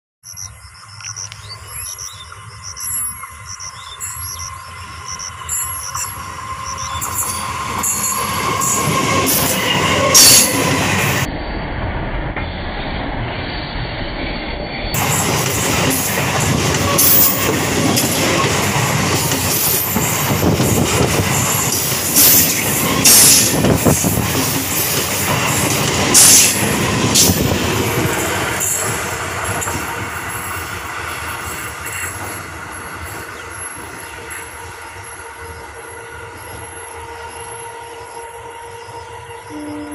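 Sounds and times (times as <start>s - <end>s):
train wheels rumbling on rails: 1.0s - 39.9s
high-pitched wheel squeal: 3.9s - 11.0s.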